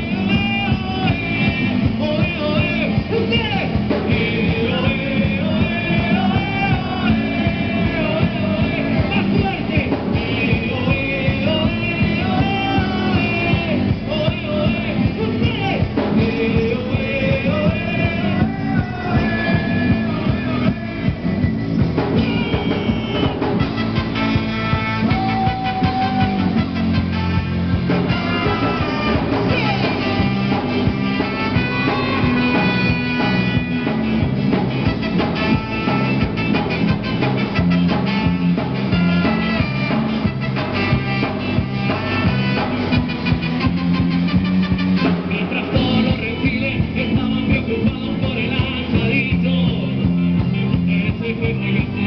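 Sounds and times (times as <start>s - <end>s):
man singing into a microphone: 0.0s - 34.2s, 34.8s - 43.6s, 45.0s - 52.0s
live rock band playing: 0.0s - 52.0s
trumpet and trombone: 22.0s - 46.5s.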